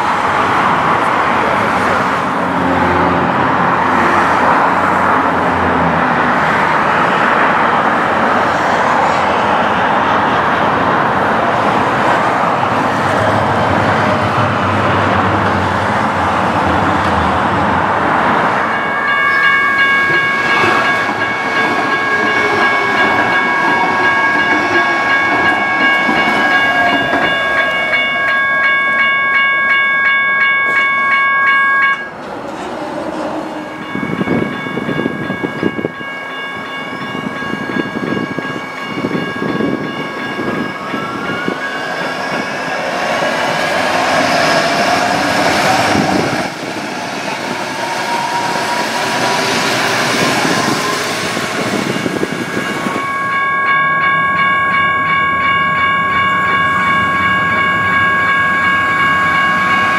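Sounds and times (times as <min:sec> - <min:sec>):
light rail train rumbling on track: 0:00.0 - 0:59.9
road traffic: 0:00.0 - 0:59.9
bell-like warning signal: 0:18.4 - 0:32.2, 0:33.6 - 0:59.9.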